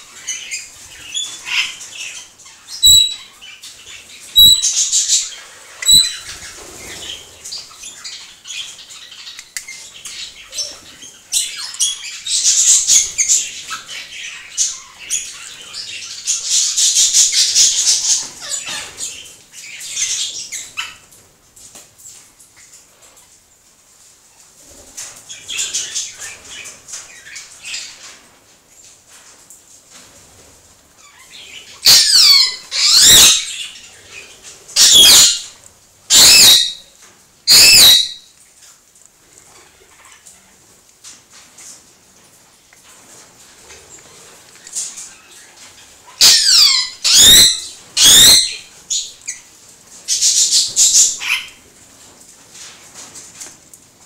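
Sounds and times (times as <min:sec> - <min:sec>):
parrots calling shrilly: 0:01.2 - 0:03.4, 0:04.4 - 0:06.4, 0:31.0 - 0:33.8, 0:34.8 - 0:35.5, 0:36.1 - 0:36.9, 0:37.5 - 0:38.3, 0:46.0 - 0:49.1, 0:50.2 - 0:51.6.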